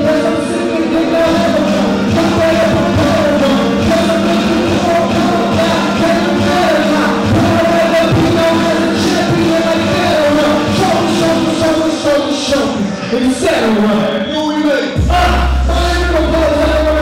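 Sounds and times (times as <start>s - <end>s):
person singing long held notes: 0.0s - 11.7s.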